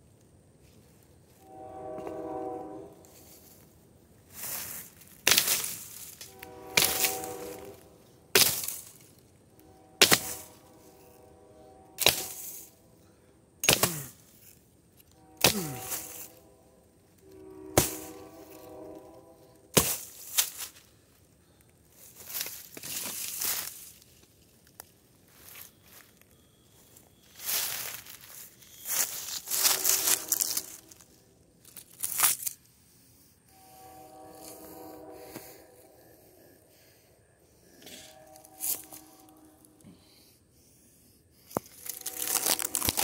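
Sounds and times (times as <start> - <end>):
blade chopping tree trunk: 13.6 - 14.1.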